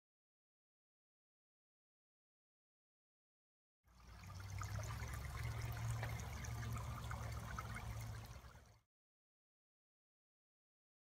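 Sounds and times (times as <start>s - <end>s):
sauce bubbling and popping: 4.2s - 8.6s.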